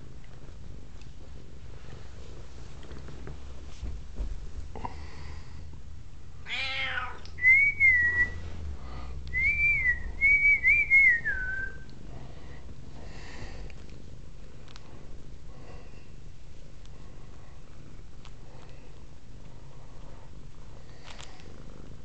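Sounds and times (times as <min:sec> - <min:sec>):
cat purring: 0:00.0 - 0:22.0
cat meowing: 0:06.4 - 0:07.3
person whistling: 0:07.4 - 0:08.4, 0:09.3 - 0:11.8.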